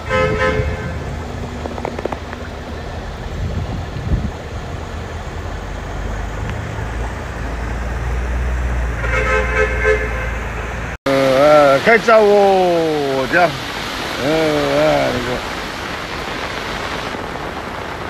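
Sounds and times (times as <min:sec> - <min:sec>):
short horn-like tone: 0:00.0 - 0:01.0, 0:09.0 - 0:10.5
low engine rumble: 0:00.0 - 0:11.0
rain and floodwater rushing: 0:00.0 - 0:18.0.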